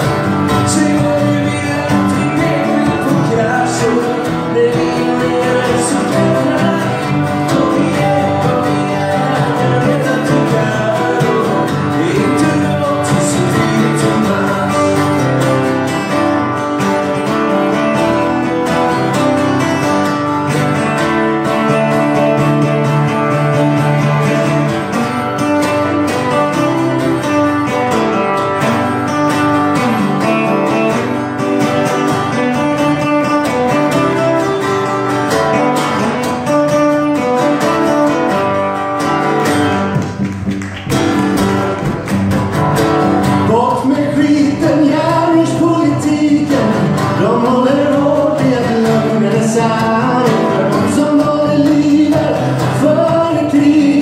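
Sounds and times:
acoustic guitars strumming: 0.0 - 54.0
men singing: 0.4 - 16.0, 43.4 - 54.0.

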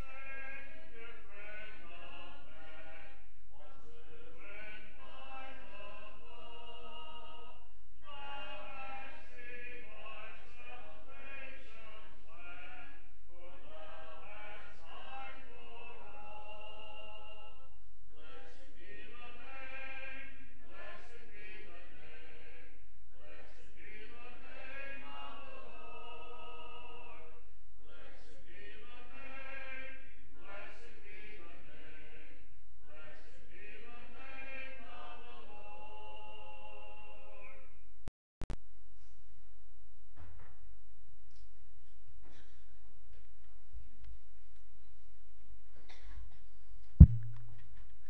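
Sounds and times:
congregation singing a hymn: 0.0 - 37.6.

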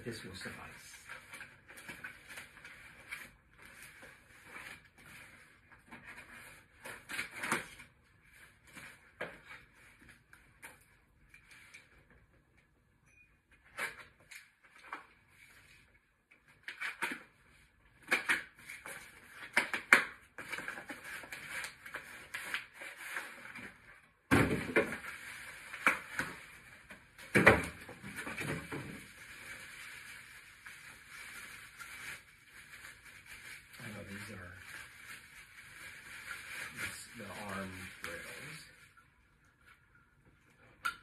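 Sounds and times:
plastic wrapping crinkling: 24.7 - 39.1.

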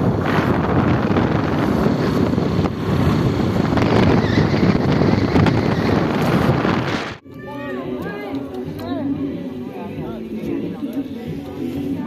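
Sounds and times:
wind buffeting microphone: 0.0 - 7.2
road noise: 0.0 - 12.0.

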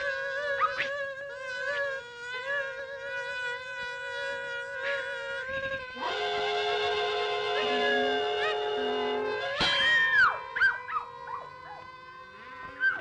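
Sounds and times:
cartoon insect swarm buzzing: 0.0 - 13.0.

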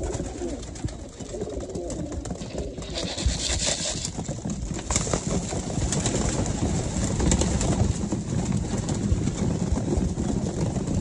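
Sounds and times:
pigeons cooing: 0.0 - 4.2
wing flutters: 0.0 - 4.2.

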